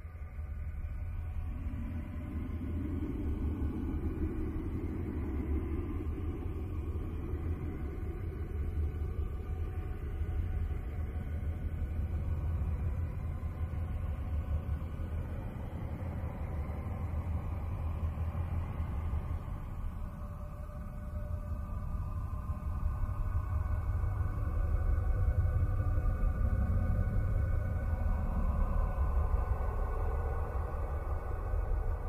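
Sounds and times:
deep rumble drone: 0.0 - 32.0
soft hum: 0.0 - 32.0.

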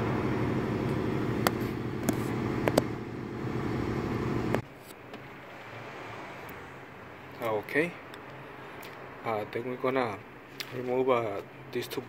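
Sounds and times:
steady low hum: 0.0 - 4.6.

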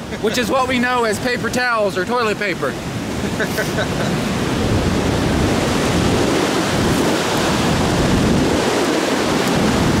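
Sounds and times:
river rapids rushing: 0.0 - 10.0
wind buffeting microphone: 0.0 - 10.0.

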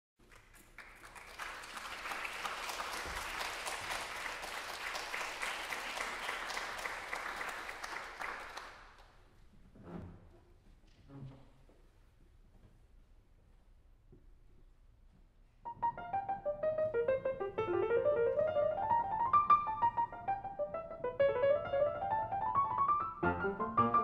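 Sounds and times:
audience applauding: 0.2 - 9.2.

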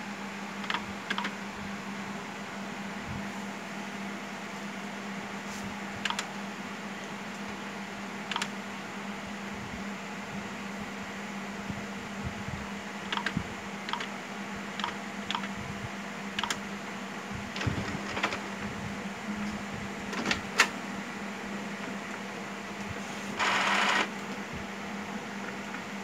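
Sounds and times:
steady low hum: 0.0 - 26.0
printer whirr: 16.2 - 26.0.

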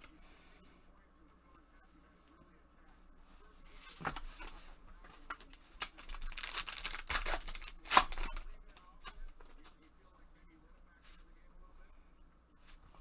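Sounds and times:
plastic wrapper tearing: 5.5 - 8.4.

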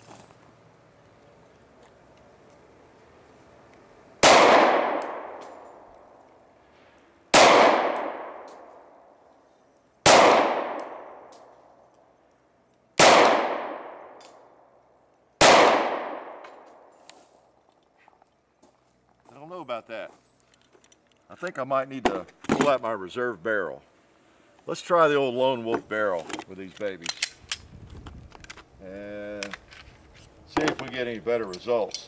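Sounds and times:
pistol shots: 4.2 - 5.7, 7.3 - 8.7, 10.0 - 11.5, 13.0 - 14.2, 15.4 - 16.6.

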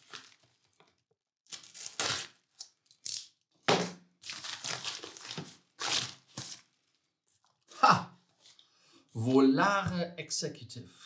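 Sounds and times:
knife slitting paper envelope: 0.0 - 0.9
paper crinkling and tearing: 0.0 - 3.2, 4.2 - 6.7.

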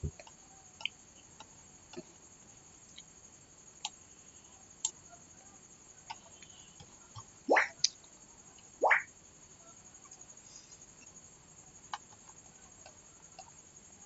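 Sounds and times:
faint scattered clicks: 0.0 - 2.1, 3.8 - 4.0, 4.8 - 5.1, 10.9 - 14.0.

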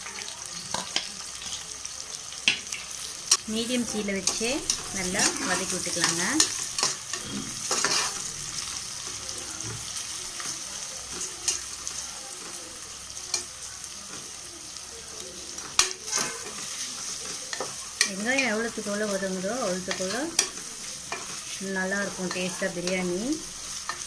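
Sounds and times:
onions sizzling in hot oil: 0.0 - 24.0.

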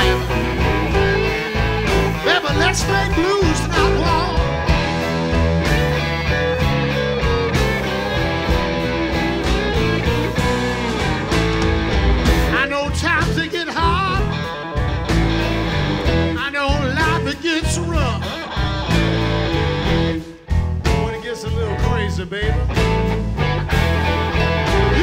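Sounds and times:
blues-rock band playing: 0.0 - 25.0
electric guitar lead: 0.0 - 25.0.

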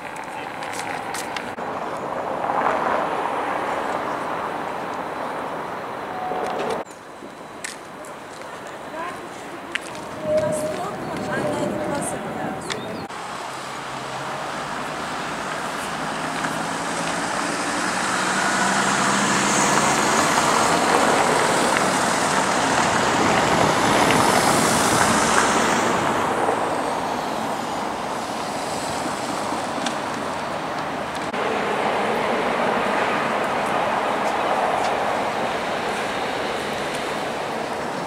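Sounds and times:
street traffic: 0.0 - 38.0
car driving past: 13.5 - 27.6.

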